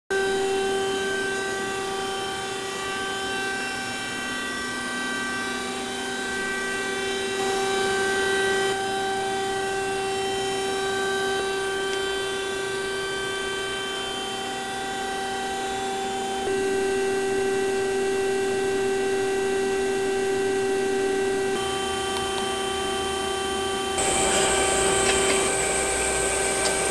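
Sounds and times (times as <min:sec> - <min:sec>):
grinding machine whine: 0:00.1 - 0:26.9
constant hiss: 0:24.0 - 0:26.9.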